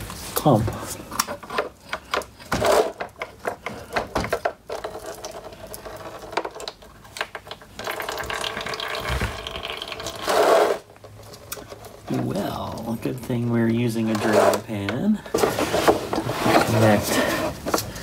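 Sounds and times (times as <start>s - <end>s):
fluid trickling into pan: 7.8s - 10.2s.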